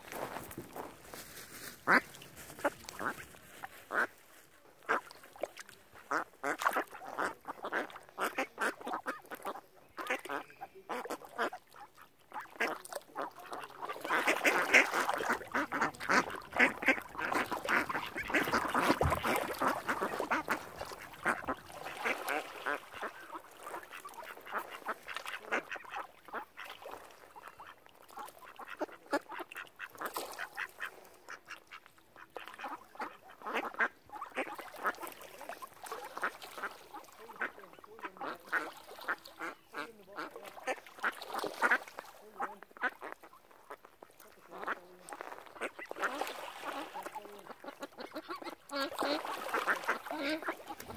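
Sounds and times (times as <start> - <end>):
ducks quacking: 1.1 - 4.2, 4.8 - 50.9.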